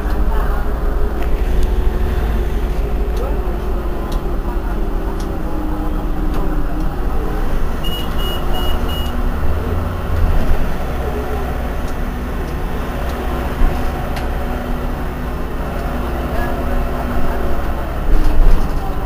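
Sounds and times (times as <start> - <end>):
bus engine idling: 0.0 - 19.0
short high beeps: 7.8 - 9.2.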